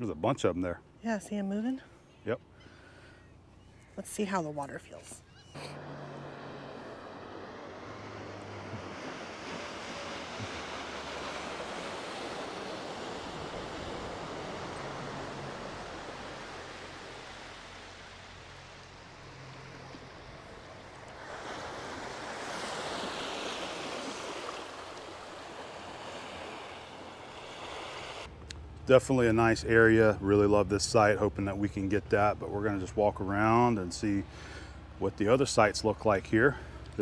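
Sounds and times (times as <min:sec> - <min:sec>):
waves washing onto shore: 0:05.6 - 0:28.3.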